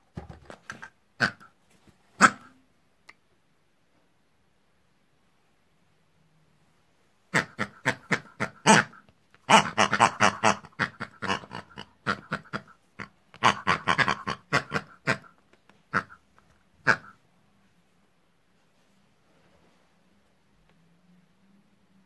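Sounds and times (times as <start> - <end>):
pig-like grunts and squeals: 7.4 - 15.3.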